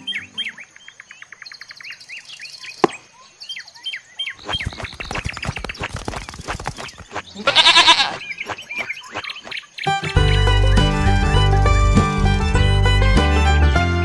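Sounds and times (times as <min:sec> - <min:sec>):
birds chirping: 0:00.0 - 0:11.0
goat bleating: 0:07.4 - 0:08.2.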